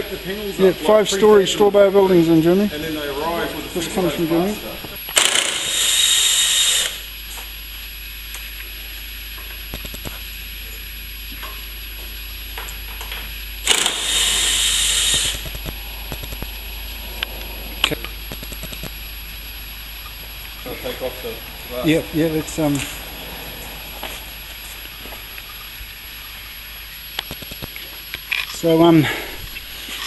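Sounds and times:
cordless driver running: 3.8 - 7.1, 13.6 - 16.6.

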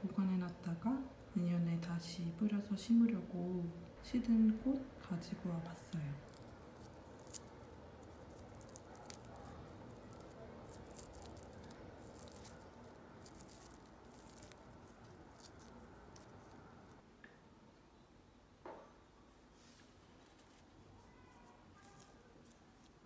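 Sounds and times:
dry flower head crackling: 5.7 - 17.0, 20.0 - 23.0.

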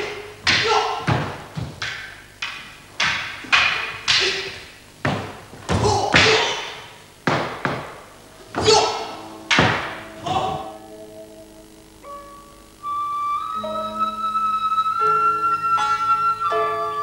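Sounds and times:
wooden weapons clacking: 0.0 - 7.9.

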